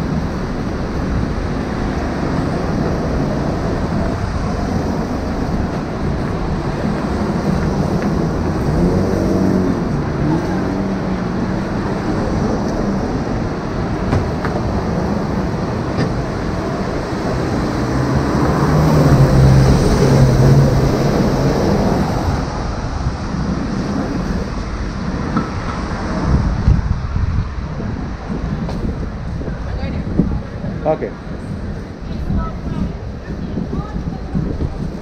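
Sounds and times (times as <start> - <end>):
passing vehicles: 0.0 - 35.0
vehicle engine passing by: 1.2 - 14.1, 14.8 - 35.0.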